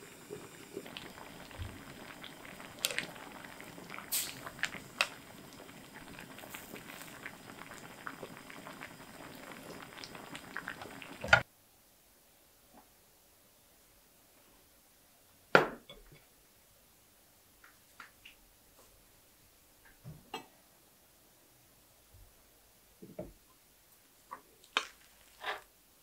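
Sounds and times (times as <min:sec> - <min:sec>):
liquid boiling and bubbling: 0:00.0 - 0:11.4.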